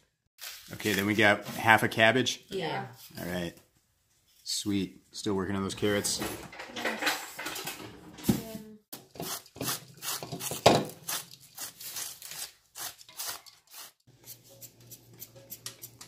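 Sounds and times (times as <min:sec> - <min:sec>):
peeler shredding carrot: 0:09.0 - 0:16.0
blade scraping through cabbage: 0:09.2 - 0:16.0.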